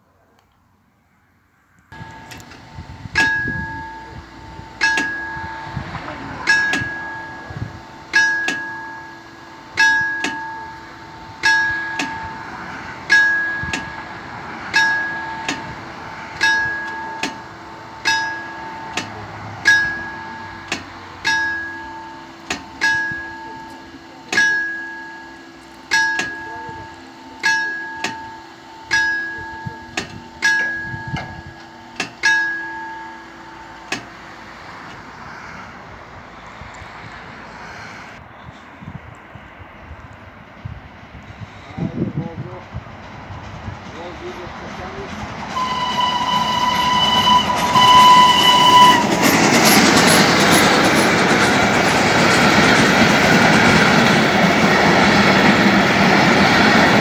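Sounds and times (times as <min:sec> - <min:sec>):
level crossing warning bell: 0:01.9 - 0:35.0, 0:45.5 - 0:57.0.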